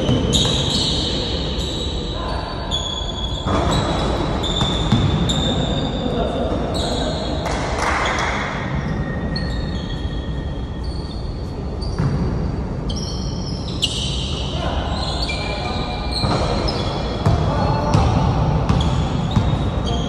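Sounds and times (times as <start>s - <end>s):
voices: 0.0s - 9.9s, 13.0s - 20.0s
basketball bouncing: 3.7s - 5.4s, 16.2s - 19.7s.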